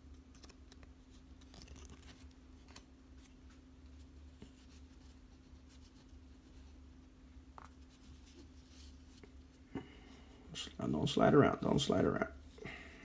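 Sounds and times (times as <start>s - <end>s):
steady low hum: 0.0s - 13.0s
cards rustling and scraping: 0.1s - 6.8s.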